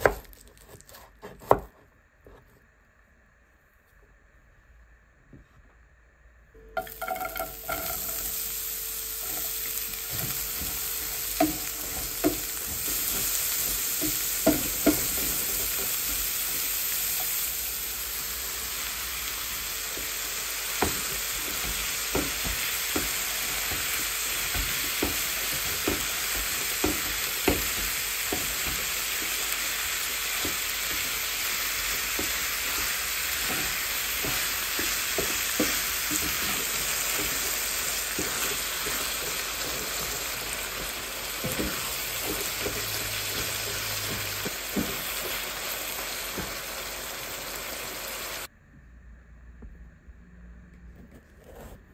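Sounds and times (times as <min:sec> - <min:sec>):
meat sizzling in oil: 0:06.8 - 0:48.5
spatula scraping a pan: 0:20.8 - 0:45.4.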